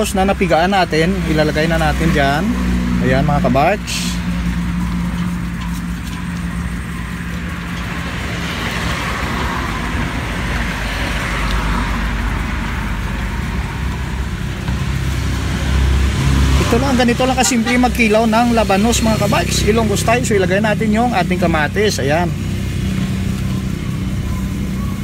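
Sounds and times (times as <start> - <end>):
low engine hum: 0.0 - 25.0
passing vehicle hiss: 1.1 - 6.0.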